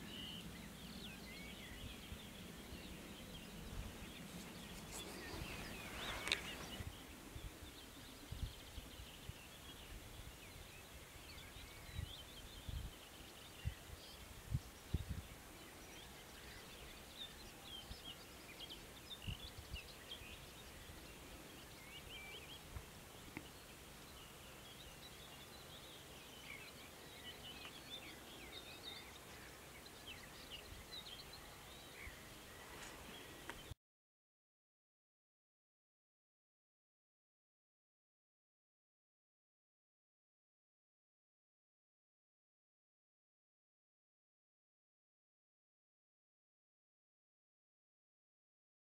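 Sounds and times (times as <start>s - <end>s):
distant birds chirping: 0.0s - 33.8s.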